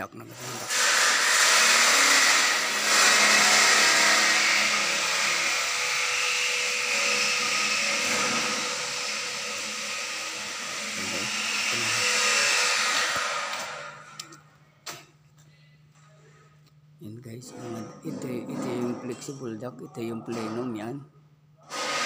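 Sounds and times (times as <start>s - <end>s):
rushing machine noise: 0.6s - 14.0s.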